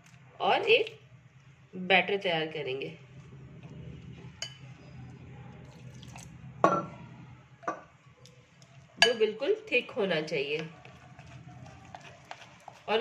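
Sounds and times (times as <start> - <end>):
spoon scraping in bowl: 10.6 - 13.0.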